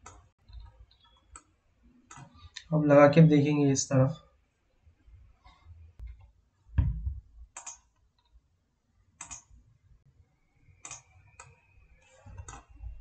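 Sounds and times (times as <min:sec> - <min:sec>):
computer mouse clicks: 0:00.0 - 0:01.5, 0:02.1 - 0:02.7, 0:07.5 - 0:08.3, 0:09.2 - 0:09.5, 0:10.8 - 0:12.8
dull thump: 0:06.8 - 0:07.3.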